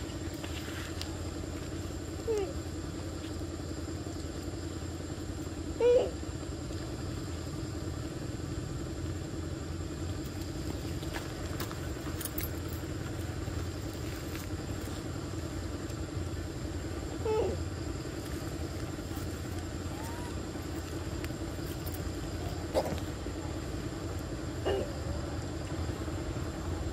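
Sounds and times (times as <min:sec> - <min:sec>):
engine hum: 0:00.0 - 0:26.9.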